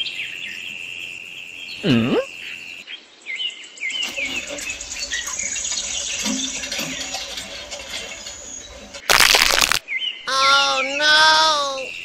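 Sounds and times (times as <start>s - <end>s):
small birds chirping: 0.0s - 12.0s
steady outdoor hiss: 0.0s - 12.0s.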